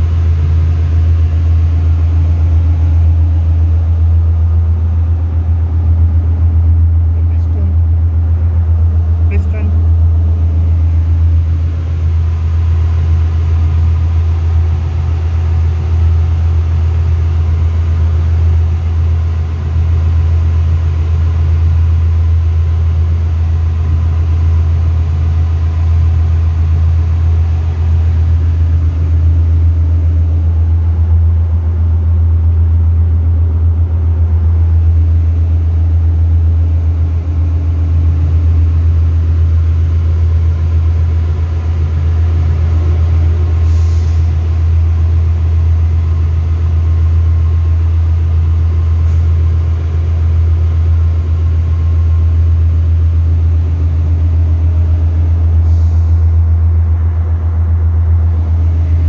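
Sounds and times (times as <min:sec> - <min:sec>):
engine-room machinery drone: 0:00.0 - 0:59.0.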